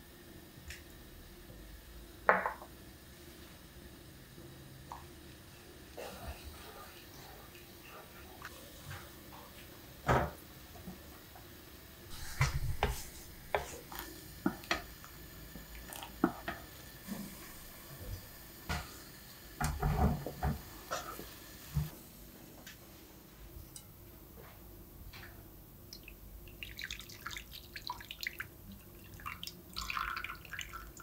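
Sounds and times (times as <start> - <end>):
wooden spoon scraping a pan: 12.1 - 14.1.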